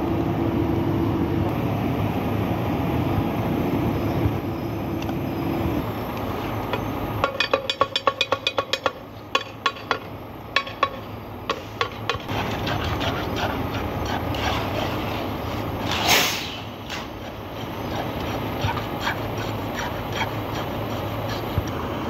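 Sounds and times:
low engine hum: 0.0 - 7.6, 8.6 - 22.0
metal rods tapping steel moulds: 6.7 - 12.3.

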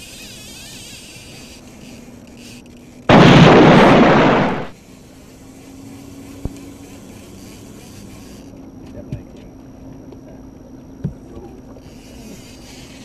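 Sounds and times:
outboard motor running: 0.0 - 13.0
loud rushing blast: 3.1 - 4.7.

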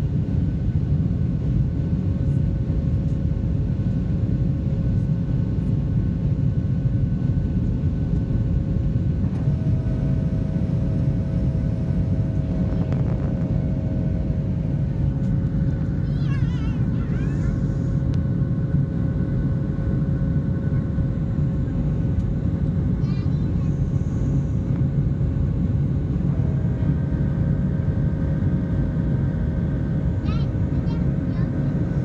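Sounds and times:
airplane cabin low rumble: 0.0 - 32.0
faint engine whines: 0.0 - 32.0.

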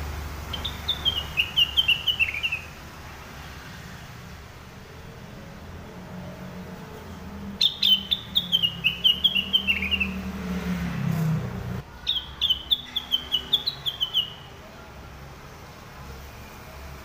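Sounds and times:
bird singing sharp notes: 0.5 - 2.7, 7.6 - 10.3, 12.0 - 14.5.

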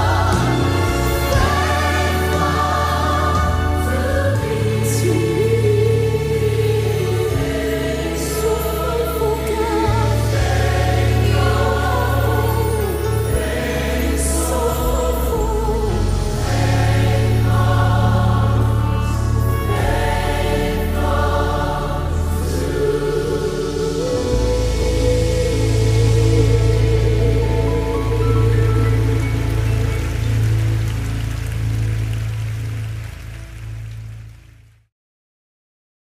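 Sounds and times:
choir singing gospel: 0.0 - 31.2
held bass notes: 0.0 - 34.5.

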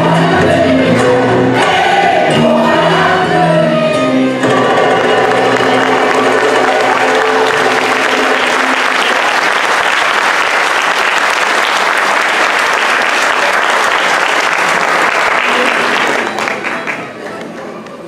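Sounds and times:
choir and ensemble music: 0.0 - 11.8
audience applauding: 4.8 - 17.5.

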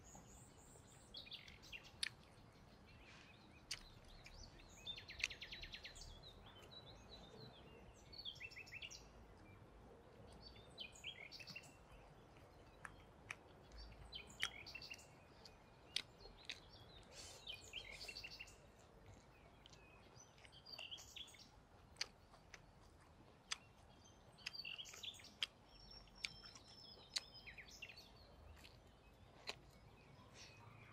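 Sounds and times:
small birds chirping: 0.0 - 30.9
chewing crispy food: 0.2 - 30.9.

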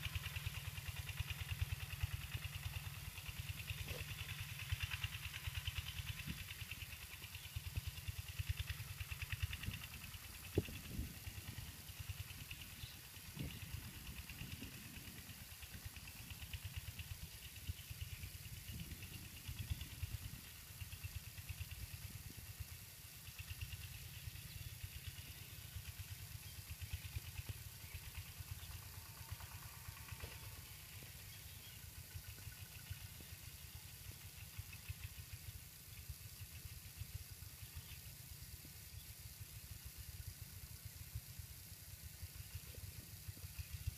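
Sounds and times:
distant tractor diesel engine chugging: 0.0 - 43.9.

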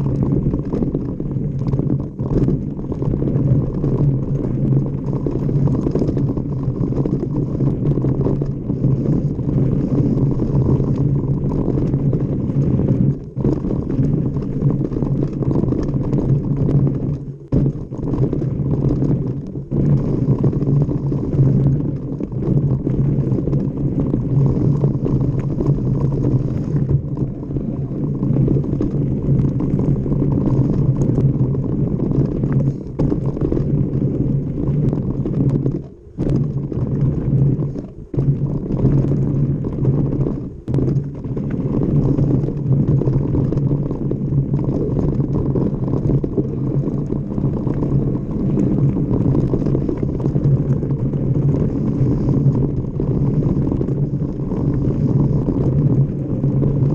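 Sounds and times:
bike tyres rumbling on dirt: 0.0 - 56.9
wind on microphone: 0.0 - 56.9.

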